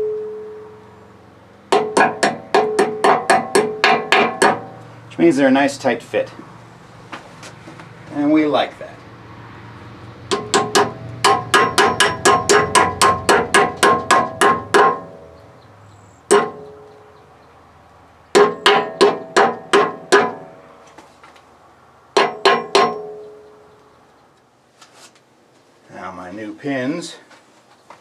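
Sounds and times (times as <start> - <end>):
hammer striking metal bushing: 1.7 - 4.8, 10.3 - 15.4, 16.3 - 17.0, 18.3 - 20.7, 22.2 - 23.6.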